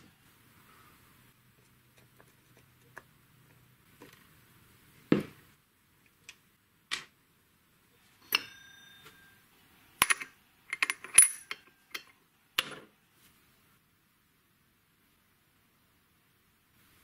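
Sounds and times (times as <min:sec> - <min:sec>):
metal part ringing: 0:08.2 - 0:09.4, 0:10.0 - 0:12.1
metal parts clicking and clinking: 0:10.0 - 0:12.2.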